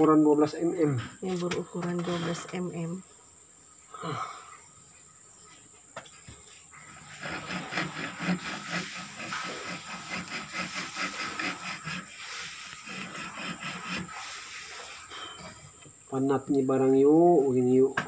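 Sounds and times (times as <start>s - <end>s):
hand saw cutting plywood: 6.9s - 15.1s.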